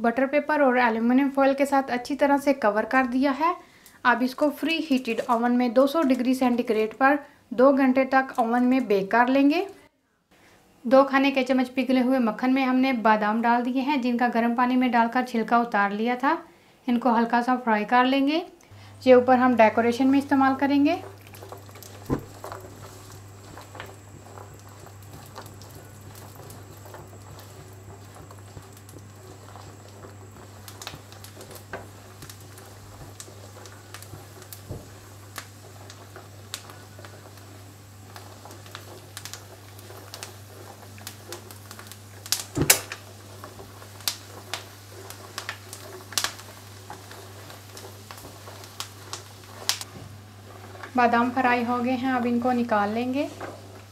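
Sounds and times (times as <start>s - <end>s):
almonds sizzling in butter: 2.0s - 9.8s, 18.7s - 53.9s
steady low hum: 18.6s - 53.8s
sharp pops and clicks: 21.1s - 49.9s.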